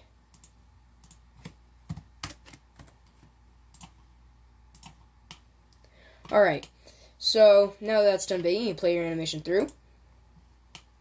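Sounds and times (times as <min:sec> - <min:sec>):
faint keyboard typing: 0:00.3 - 0:04.0, 0:04.7 - 0:06.8.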